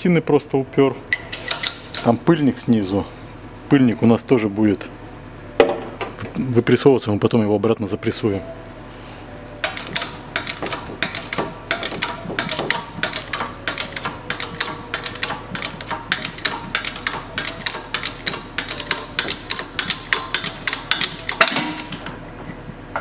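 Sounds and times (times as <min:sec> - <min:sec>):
shop press clicking: 0:09.6 - 0:22.2.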